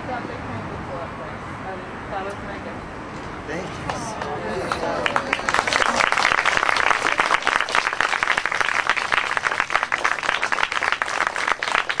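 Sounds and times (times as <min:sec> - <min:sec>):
crowd applauding: 0:03.9 - 0:12.0.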